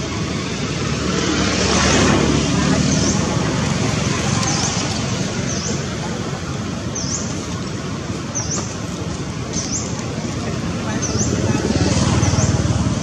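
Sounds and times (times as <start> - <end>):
rushing background noise: 0.0 - 13.0
bird chirping: 4.4 - 5.9, 6.9 - 7.3, 8.3 - 8.7, 9.5 - 10.0.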